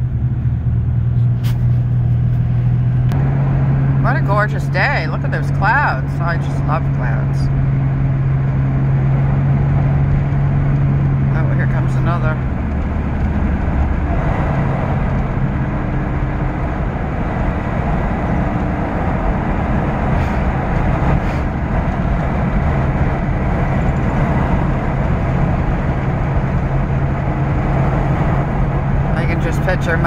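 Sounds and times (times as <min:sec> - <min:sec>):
low engine drone: 0:00.0 - 0:30.0
tyre and road noise: 0:00.0 - 0:30.0.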